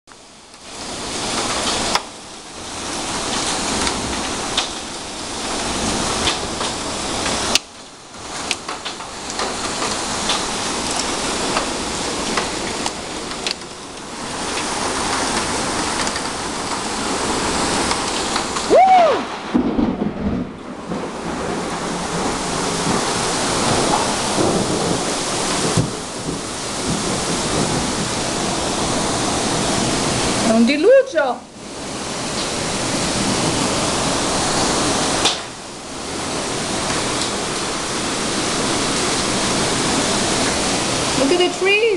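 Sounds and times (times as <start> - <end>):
heavy rain and wind: 0.1 - 41.9
hailstones striking hard surfaces: 3.1 - 18.7.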